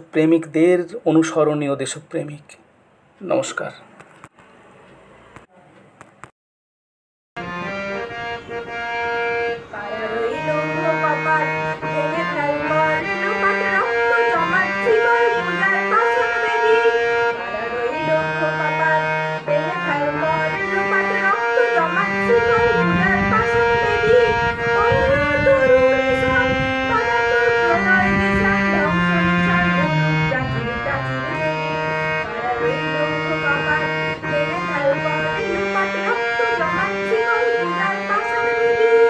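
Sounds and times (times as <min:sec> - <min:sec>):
harmonium melody: 0:07.4 - 0:39.0
boy singing: 0:09.6 - 0:39.0.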